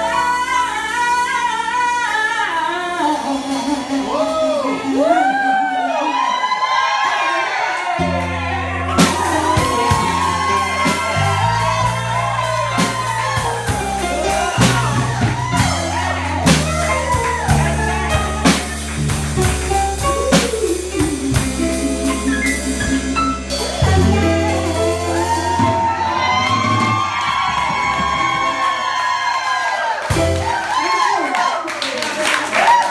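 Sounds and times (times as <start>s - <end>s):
woman singing into a microphone: 0.0s - 6.3s, 20.3s - 23.0s
bass: 0.0s - 31.1s
drum-kit beat with cymbals: 9.0s - 26.0s.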